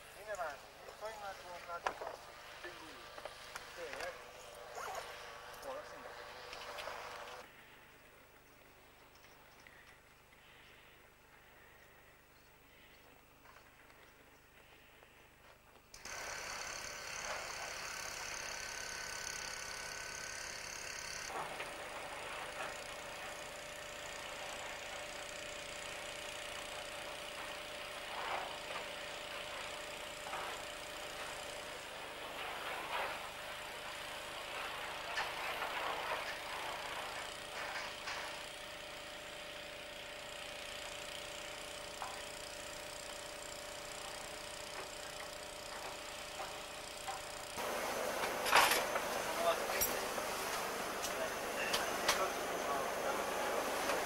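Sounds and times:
steady machine hum: 0:16.0 - 0:54.0.

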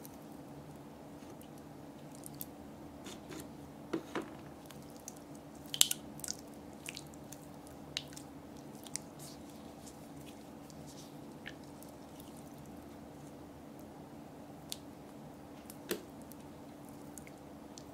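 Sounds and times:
steady low hum: 0:00.0 - 0:17.9
slime squelching: 0:04.6 - 0:13.4.

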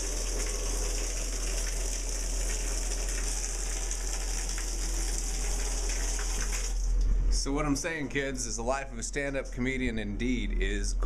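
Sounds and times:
shower water running: 0:00.0 - 0:07.1.

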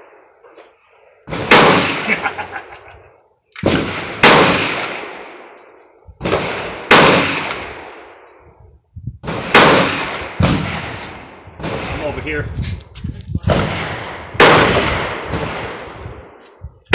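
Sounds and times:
faint gunshot: 0:01.3 - 0:02.2, 0:06.2 - 0:07.8, 0:09.2 - 0:12.0, 0:13.5 - 0:15.8
loud pistol shots echoing: 0:01.3 - 0:02.5, 0:03.6 - 0:05.5, 0:06.2 - 0:08.1, 0:09.2 - 0:12.2, 0:13.5 - 0:15.8.

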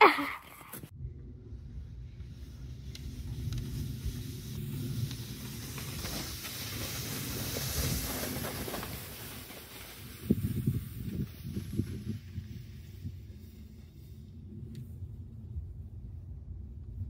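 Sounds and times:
low rumble: 0:00.9 - 0:06.1, 0:11.4 - 0:17.0
plastic sled hissing on snow: 0:02.3 - 0:14.6.

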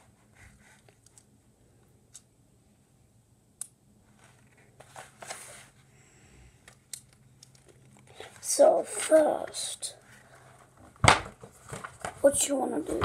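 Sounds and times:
paper rustling: 0:04.1 - 0:05.8, 0:11.1 - 0:13.0.

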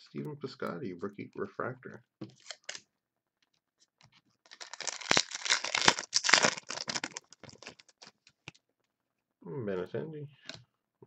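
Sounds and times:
wrapper and cards crinkling: 0:04.4 - 0:08.6.

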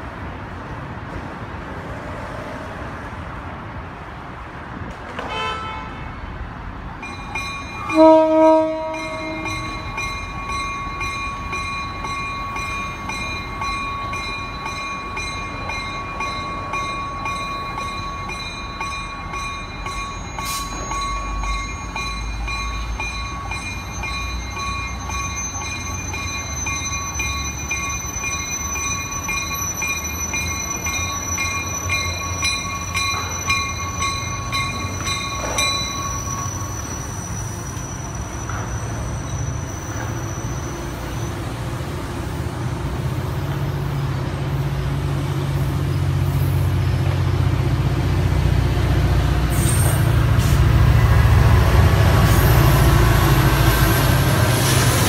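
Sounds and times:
train rumble: 0:00.0 - 0:55.0
train horn blast: 0:05.2 - 0:06.1, 0:07.9 - 0:09.8
bell ringing: 0:07.0 - 0:38.1.

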